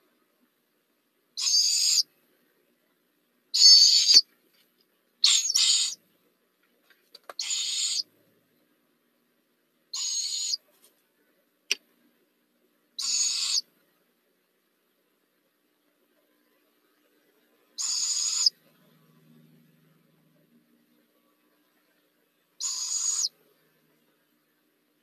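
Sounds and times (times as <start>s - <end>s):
owlets raspy hissing calls: 1.4s - 2.0s, 3.6s - 4.2s, 5.2s - 6.0s, 7.4s - 8.0s, 10.0s - 10.6s, 13.0s - 13.6s, 17.8s - 18.5s, 22.6s - 23.3s.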